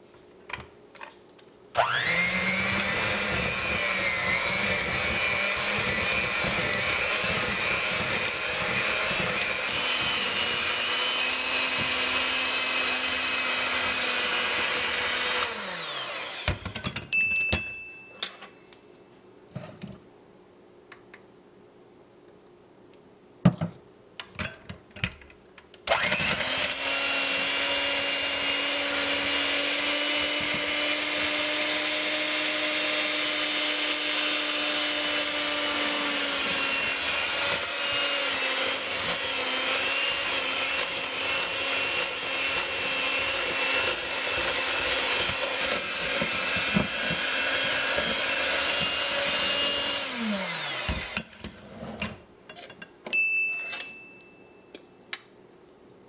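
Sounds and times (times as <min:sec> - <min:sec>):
electric hand mixer whirring: 0:01.8 - 0:16.8, 0:25.9 - 0:51.4.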